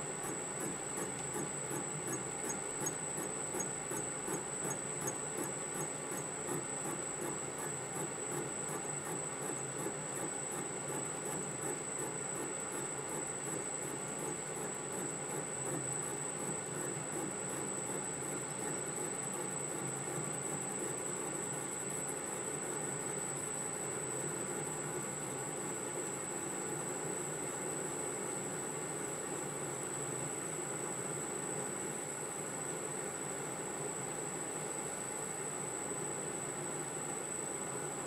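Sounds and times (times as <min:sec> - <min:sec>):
fast regular ticking: 0:00.2 - 0:11.0.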